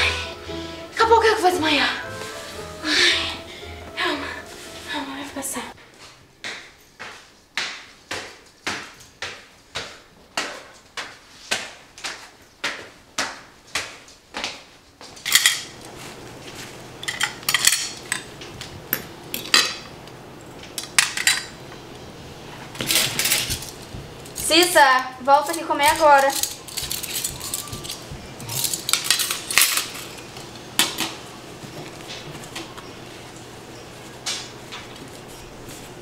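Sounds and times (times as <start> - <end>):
footsteps on hard stairs: 5.8 - 15.2, 23.8 - 24.6, 26.8 - 28.5
cutlery clinking on plates: 15.2 - 15.8, 17.0 - 18.3.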